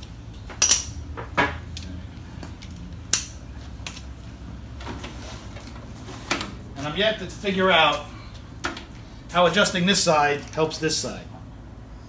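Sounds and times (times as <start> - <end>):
metal tools clinking: 0.6 - 1.0.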